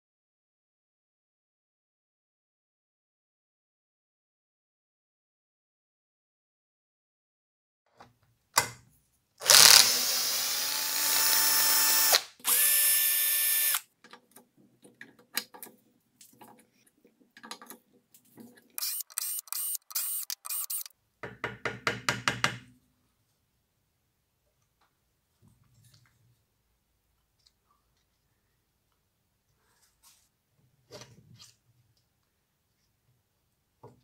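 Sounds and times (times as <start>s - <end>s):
power driver whining: 9.4s - 13.8s, 18.8s - 20.9s.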